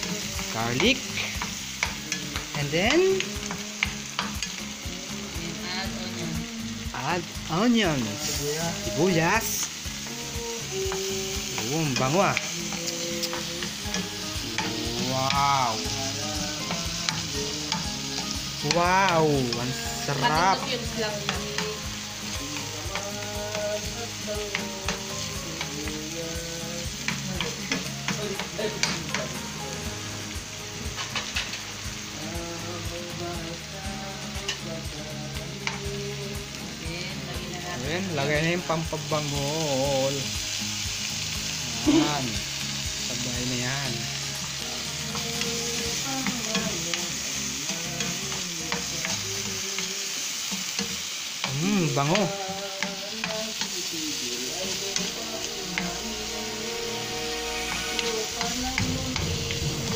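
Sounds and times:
onion and garlic sizzling in oil: 0.0 - 59.9.

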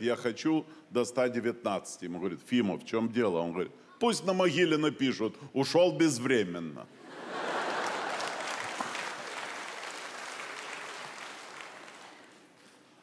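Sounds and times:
audience applauding: 7.3 - 12.6.

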